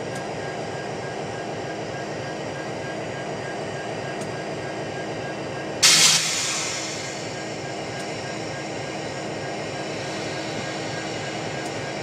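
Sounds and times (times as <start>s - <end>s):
diesel locomotive engine droning: 0.0s - 12.0s
loud hiss: 5.8s - 7.4s.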